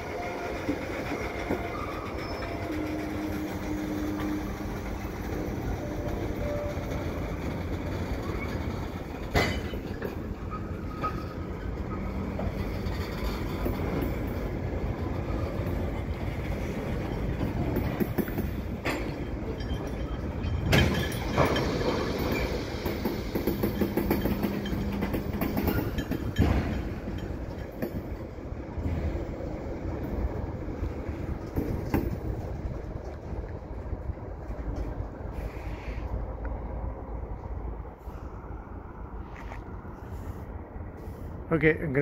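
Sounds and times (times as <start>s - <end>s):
wheels clicking over rail joints: 0.0s - 36.6s
freight train wheels rumbling: 0.0s - 42.0s
sharp metallic clanks: 9.3s - 10.2s, 17.9s - 28.2s.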